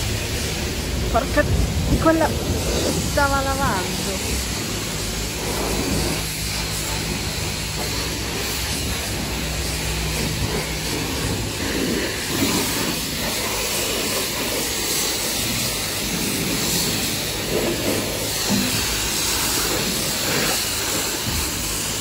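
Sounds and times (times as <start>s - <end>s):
pressure washer spraying car: 0.0s - 22.0s.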